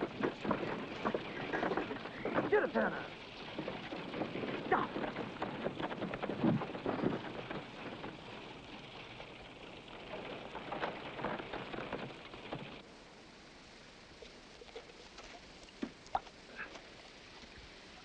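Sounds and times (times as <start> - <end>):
wagon creaks: 0.0 - 12.8
wagon wheels and harness rattling: 0.0 - 12.9.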